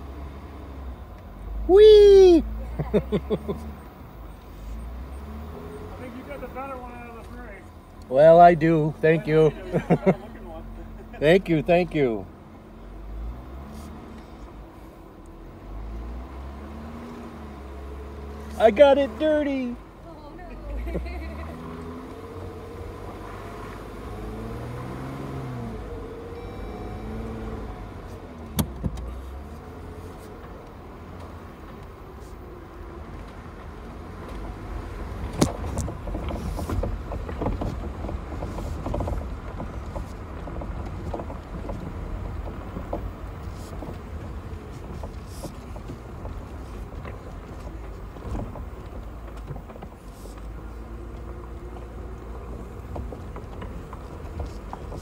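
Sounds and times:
vehicle engine running low: 0.0 - 55.0
phone sliding and rattling: 35.2 - 41.9.

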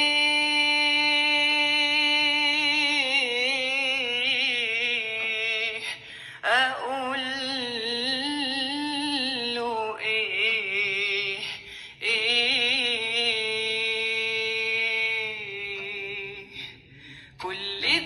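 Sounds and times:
song from phone loudspeaker: 17.4 - 18.0.

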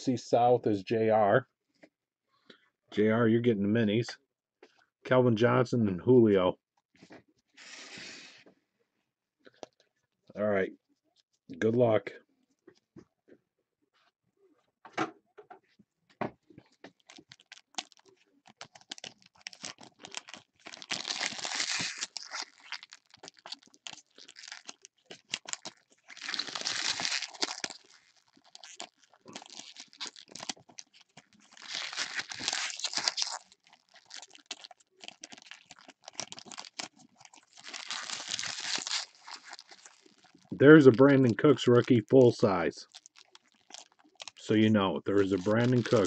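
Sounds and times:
foil wrappers crinkling and tearing: 16.6 - 46.0.

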